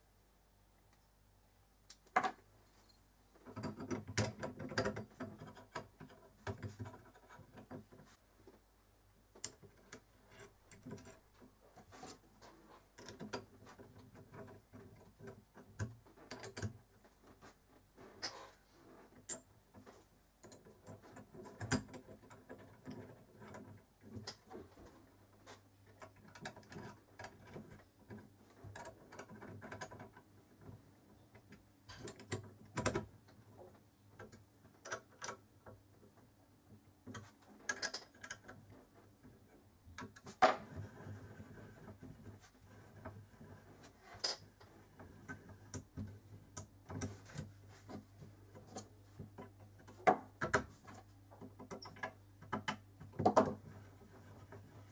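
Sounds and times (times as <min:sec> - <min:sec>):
metal clicks and knocks: 0:03.4 - 0:08.0.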